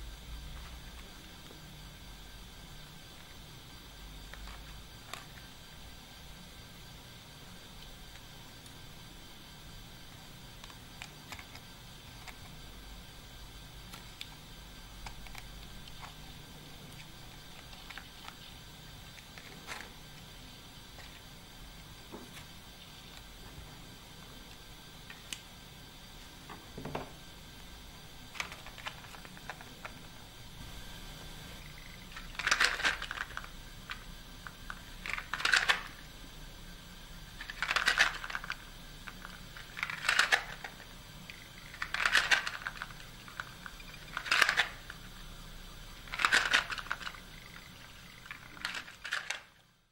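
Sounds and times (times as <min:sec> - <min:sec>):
wooden toy blocks clattering: 0:32.2 - 0:33.5, 0:35.0 - 0:36.0, 0:37.4 - 0:38.6, 0:39.2 - 0:40.8, 0:41.7 - 0:44.9, 0:46.0 - 0:47.2, 0:48.2 - 0:49.6.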